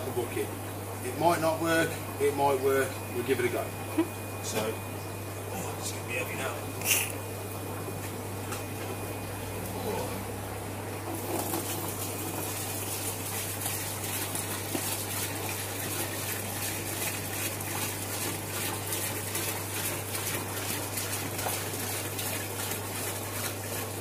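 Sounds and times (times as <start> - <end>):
water pouring into plastic bucket: 11.1 - 24.0.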